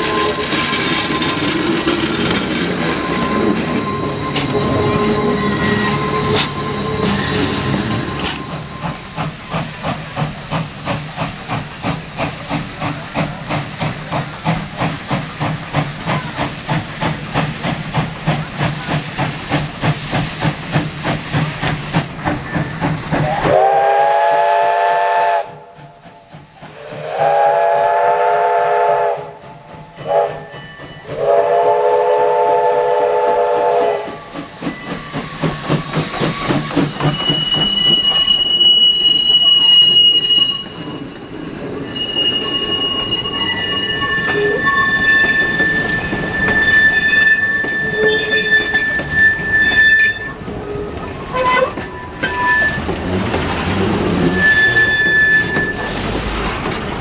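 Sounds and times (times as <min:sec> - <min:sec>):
steam locomotive chuffing: 0:00.0 - 0:57.0
train chime whistle: 0:02.7 - 0:09.1, 0:26.8 - 0:29.4, 0:30.0 - 0:34.4, 0:36.4 - 0:50.4, 0:51.3 - 0:52.9, 0:54.2 - 0:56.0.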